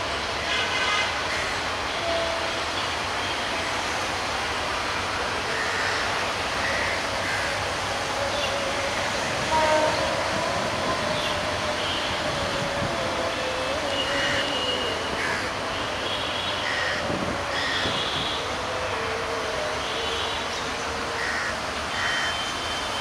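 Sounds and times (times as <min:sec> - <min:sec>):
train wheels rumbling on rails: 0:00.0 - 0:16.0.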